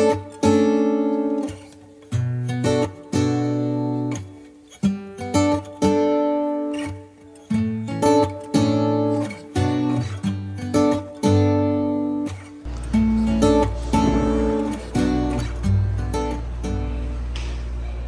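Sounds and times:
acoustic guitar picking: 0:00.0 - 0:18.0.

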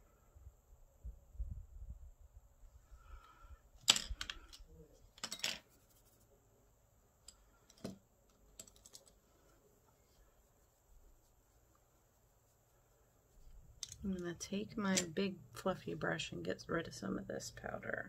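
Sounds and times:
low rustle of movement: 0:08.9 - 0:14.1
makeup items clicking and knocking: 0:13.8 - 0:14.1.

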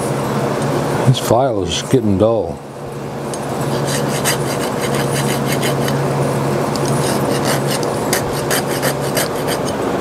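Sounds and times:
steady low hum: 0:00.0 - 0:10.0
file scraping metal: 0:03.6 - 0:06.1, 0:06.9 - 0:09.9.

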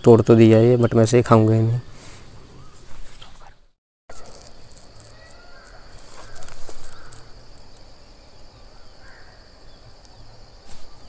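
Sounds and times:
bird calls: 0:01.9 - 0:11.0
high-pitched insect drone: 0:04.1 - 0:11.0.

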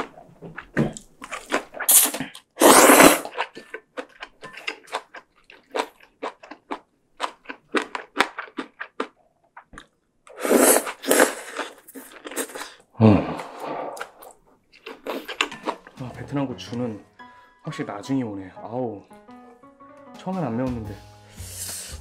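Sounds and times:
wet chewing: 0:00.0 - 0:16.0
person slurping noodles: 0:01.4 - 0:03.7, 0:10.3 - 0:14.4, 0:21.4 - 0:22.0.

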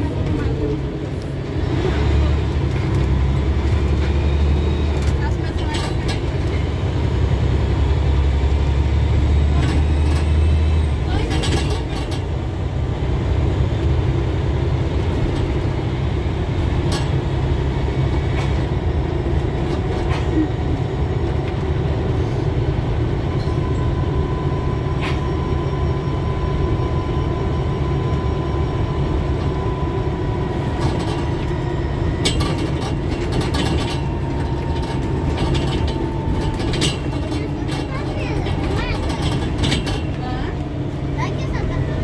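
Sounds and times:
bus engine and road rumble: 0:00.0 - 0:42.0
clicks and rattles: 0:32.2 - 0:40.2.

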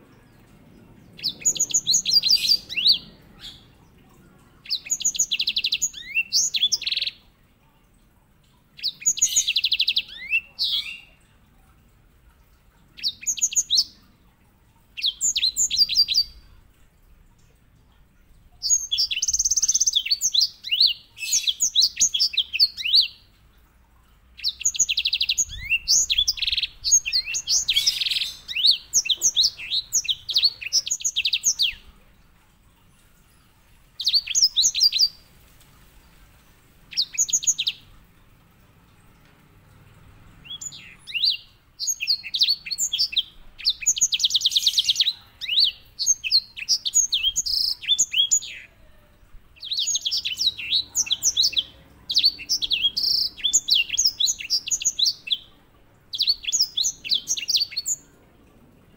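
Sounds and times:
finch singing trills: 0:00.0 - 0:03.8, 0:24.4 - 0:31.9.

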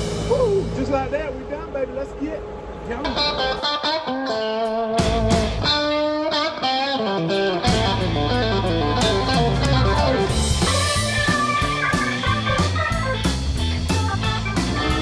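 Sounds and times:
electric guitar blues-rock music: 0:03.0 - 0:15.0.

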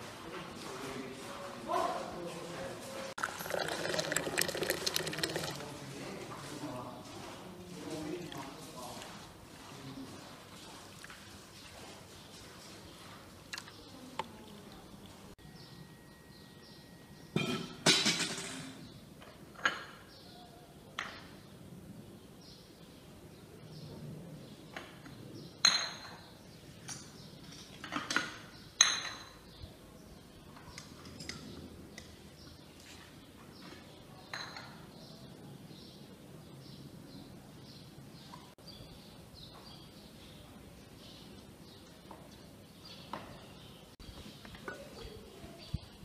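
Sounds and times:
teacups and saucers clinking: 0:03.2 - 0:05.8.

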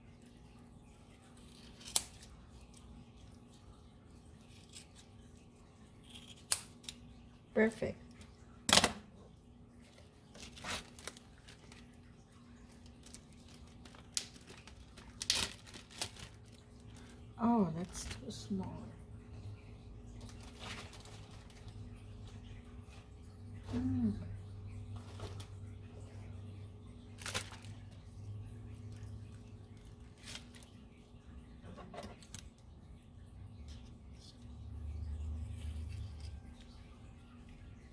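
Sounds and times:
faint low hum: 0:00.0 - 0:37.9
plastic bag rustling and crinkling: 0:09.9 - 0:18.4, 0:20.2 - 0:22.4, 0:25.0 - 0:25.8, 0:27.1 - 0:28.0, 0:29.8 - 0:30.9.

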